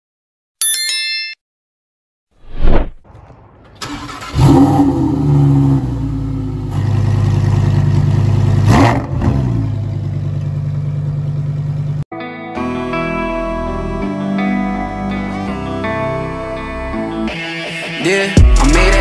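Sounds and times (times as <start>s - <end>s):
sports car engine revving: 4.0s - 11.8s.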